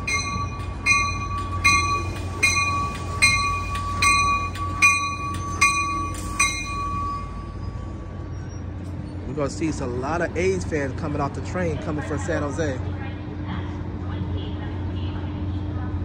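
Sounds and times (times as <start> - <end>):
train bell ringing: 0.0 - 9.5
low engine rumble: 0.0 - 16.0.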